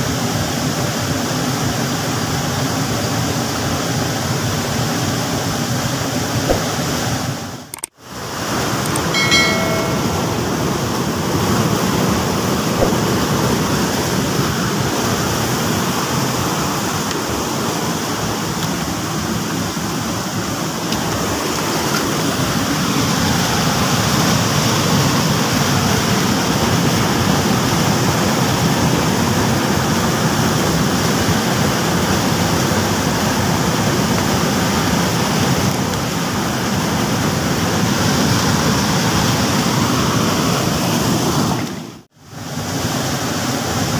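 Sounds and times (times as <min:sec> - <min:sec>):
stream water rushing over rocks: 0:10.6 - 0:43.9.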